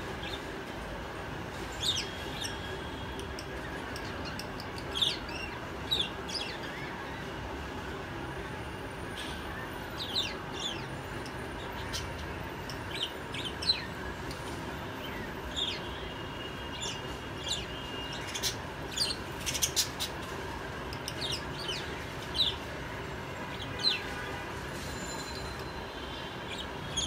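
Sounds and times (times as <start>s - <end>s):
steady low background noise: 0.0s - 27.0s
parakeets chirping: 16.6s - 20.3s.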